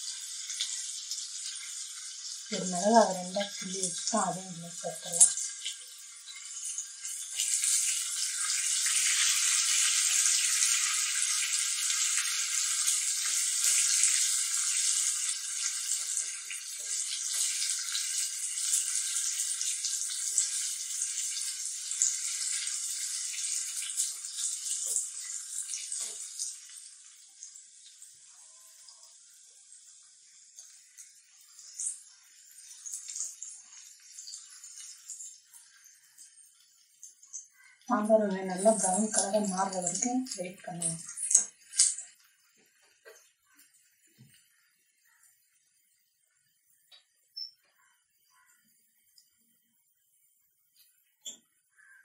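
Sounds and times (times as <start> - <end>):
shallots sizzling in hot oil: 0.0 - 52.0
oil crackles: 30.4 - 45.2.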